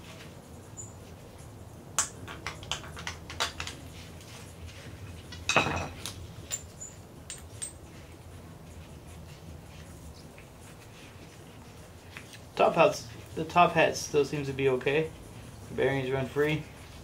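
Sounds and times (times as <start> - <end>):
metal parts clinking on concrete: 5.3 - 7.8.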